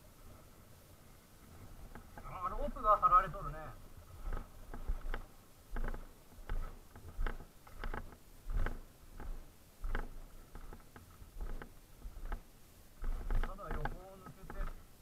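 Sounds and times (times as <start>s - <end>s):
footsteps in snow: 4.0s - 12.4s.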